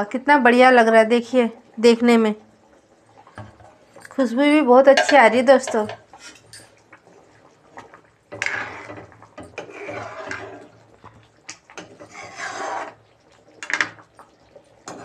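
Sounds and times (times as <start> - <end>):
metal ladle scraping pan: 5.0 - 6.8, 8.3 - 10.8, 11.7 - 13.9
gravy sloshing: 6.0 - 15.0.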